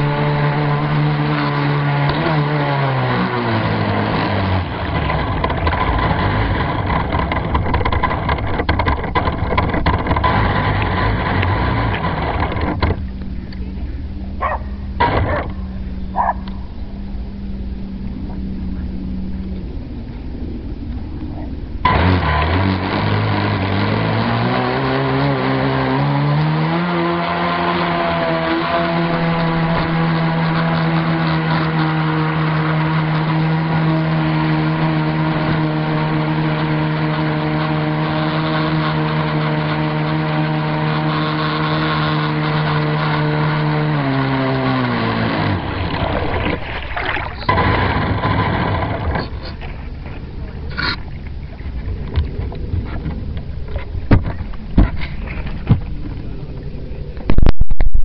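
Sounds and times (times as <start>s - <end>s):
speedboat motor whining: 0.0s - 57.6s
rushing water: 44.7s - 56.6s
wind noise: 49.0s - 58.0s.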